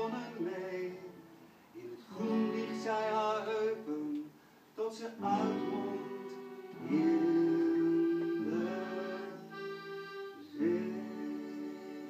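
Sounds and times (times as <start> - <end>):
accordion playing held chords: 0.0 - 1.4, 2.1 - 4.3, 5.2 - 12.0.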